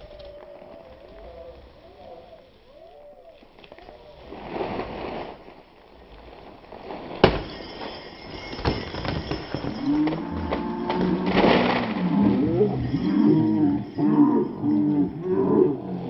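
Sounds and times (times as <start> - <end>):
bat hitting pinata: 7.2 - 7.6
slowed low rumbling: 9.5 - 16.0.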